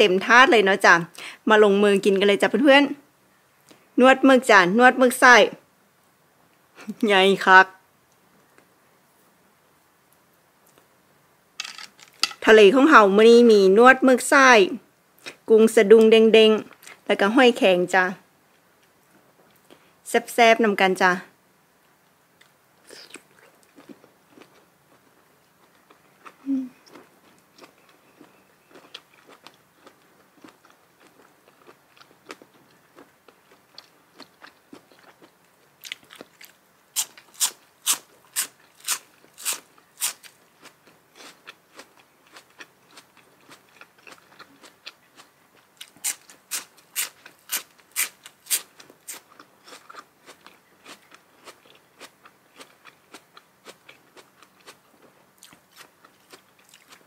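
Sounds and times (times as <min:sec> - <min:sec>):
soft chewing: 0:21.8 - 0:57.0.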